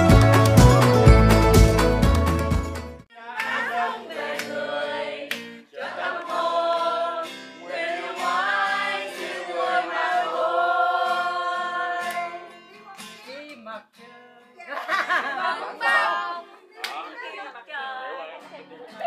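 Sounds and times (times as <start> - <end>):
acoustic guitar: 0.0 - 14.7
women singing together: 3.1 - 13.0, 14.6 - 18.4.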